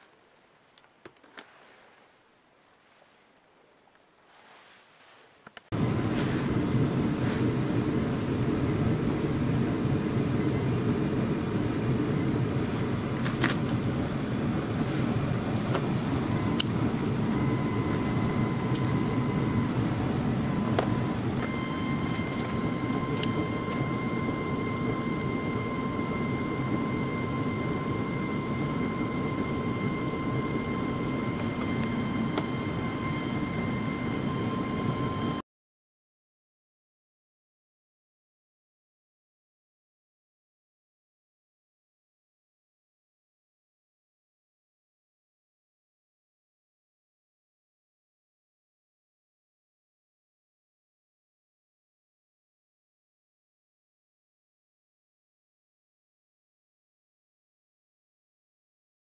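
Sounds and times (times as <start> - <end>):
steady whine: 5.0 - 35.4
machine low rumble: 5.7 - 35.4.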